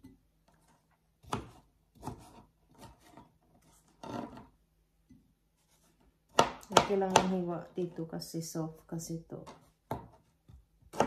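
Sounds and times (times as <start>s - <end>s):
knife cutting onto board: 0.6s - 4.5s.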